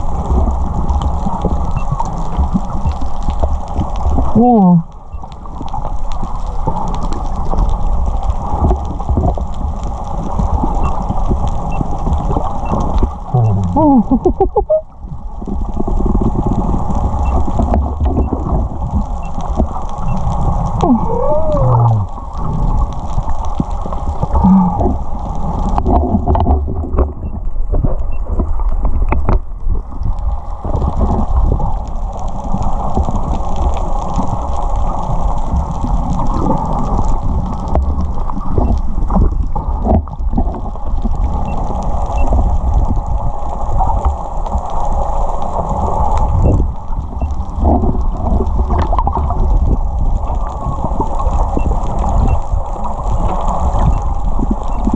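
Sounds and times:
underwater low rumble: 0.0 - 54.9
water swishing and gurgling: 0.0 - 54.9.

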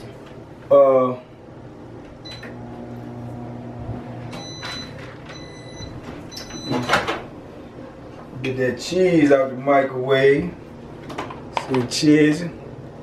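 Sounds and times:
microwave oven humming: 0.0 - 13.0
high beeps: 4.4 - 6.9.

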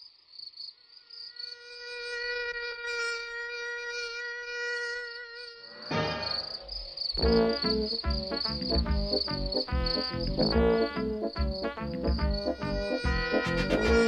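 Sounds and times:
crickets chirping: 0.0 - 2.5, 4.7 - 14.0
mosquito whine: 0.9 - 14.0
music with steady beat: 7.2 - 14.0.

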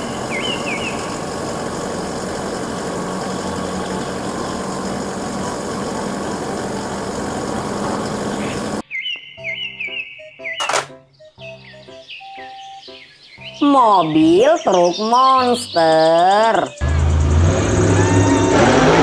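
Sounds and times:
chirping sounds: 0.0 - 1.9, 8.0 - 16.8
truck engine humming: 0.0 - 8.8, 16.4 - 19.0
bright music: 9.3 - 16.9.

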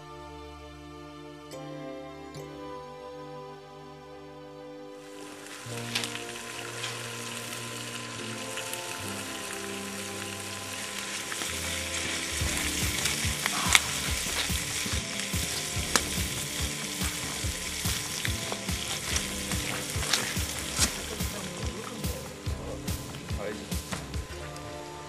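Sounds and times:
fire crackling and popping: 5.0 - 25.0
food sizzling in a frying pan: 5.0 - 25.0.

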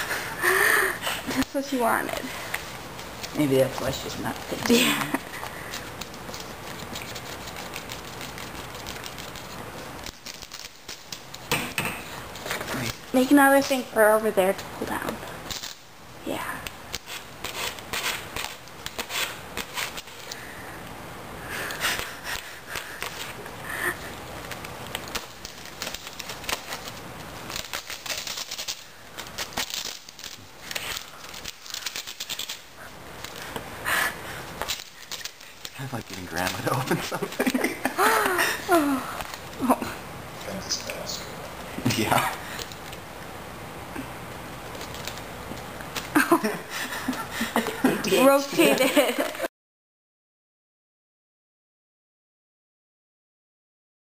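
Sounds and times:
wrapping paper crackling and tearing: 1.4 - 11.5, 15.4 - 15.9, 16.6 - 20.5, 21.9 - 33.6, 34.3 - 39.7, 44.6 - 45.3
cat clawing at paper: 5.7 - 11.5, 24.4 - 33.6.

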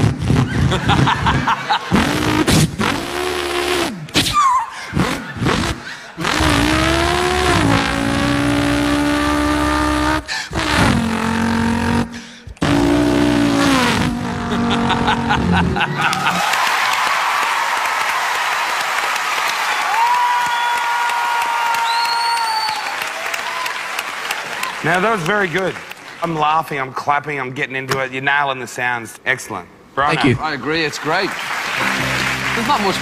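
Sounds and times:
man imitating car engine: 1.9 - 16.4
audience applause: 15.7 - 26.2, 30.6 - 33.0.

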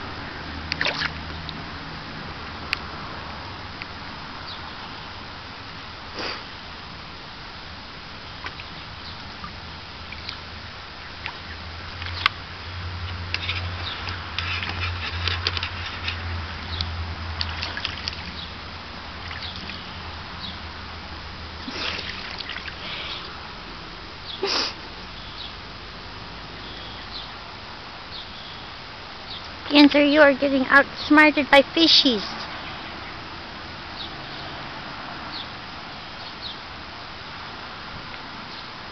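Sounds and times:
small water splashes and drips: 0.6 - 1.7, 8.2 - 23.4.

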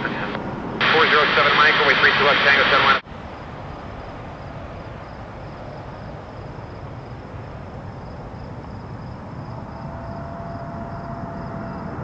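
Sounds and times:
steady low rumble: 0.0 - 12.0
insects chirping: 3.1 - 12.0.

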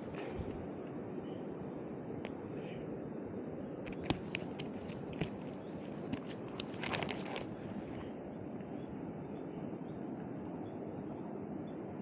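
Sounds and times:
light clicks and crackles: 3.8 - 8.1.

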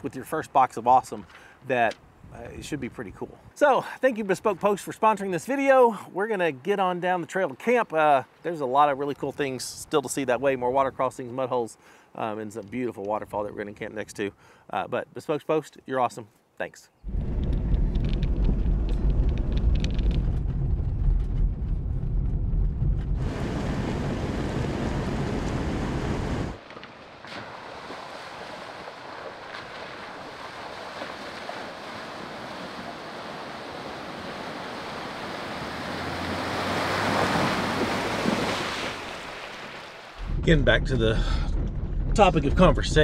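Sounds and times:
wind buffeting microphone: 17.0 - 26.6
vehicle engine rumble: 17.1 - 27.3, 40.2 - 43.0
creek water rushing: 23.2 - 40.2
tyres splashing through water: 26.0 - 40.3.

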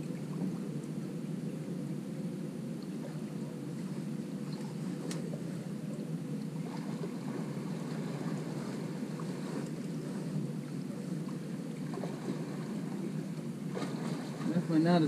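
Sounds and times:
wind: 0.0 - 15.0
faint ticks: 4.5 - 6.5
fast river current: 6.5 - 15.0.

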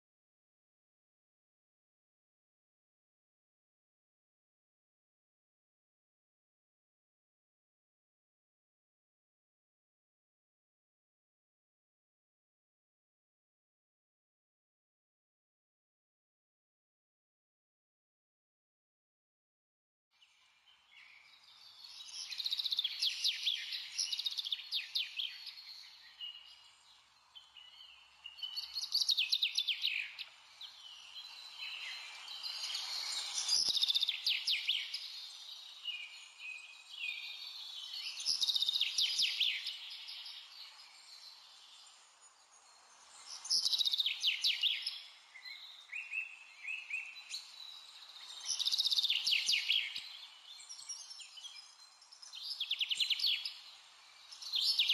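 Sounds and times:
songbirds chirping: 20.2 - 54.9.

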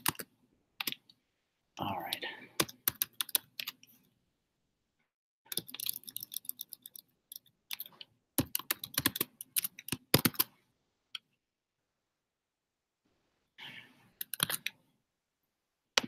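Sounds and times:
keyboard typing: 0.0 - 1.2, 2.1 - 4.0, 5.5 - 10.5, 14.2 - 14.8.

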